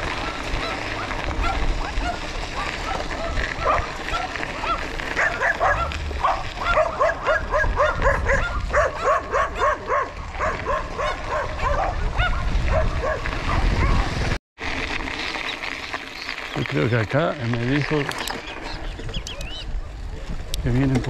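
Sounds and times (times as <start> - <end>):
wind rumble on microphone: 0.0 - 14.4, 17.5 - 21.0
dogs barking: 0.1 - 14.1.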